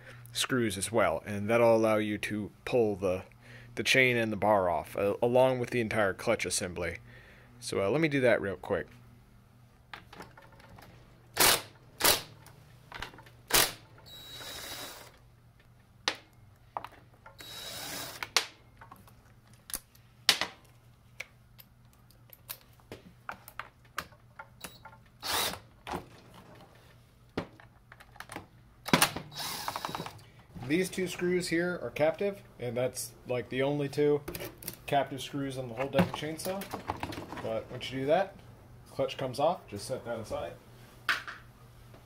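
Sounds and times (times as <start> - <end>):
cordless impact driver running: 13.5 - 15.1, 17.4 - 18.4, 25.2 - 25.6, 29.3 - 30.1.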